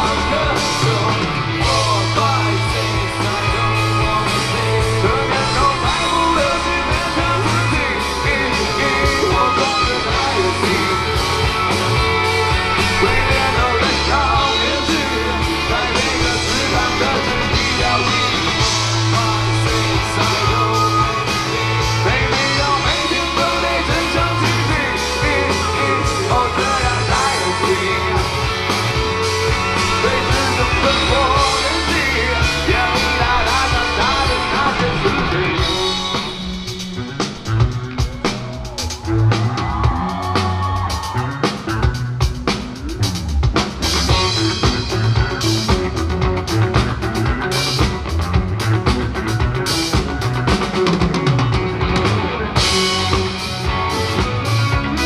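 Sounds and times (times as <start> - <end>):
person singing: 0.0 - 42.0
rock band playing live: 0.0 - 55.0.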